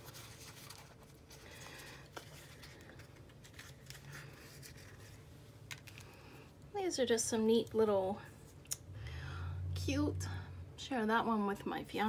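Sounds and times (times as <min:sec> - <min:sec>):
package clicks and rustles: 0:00.0 - 0:06.2
low steady hum: 0:00.0 - 0:12.0.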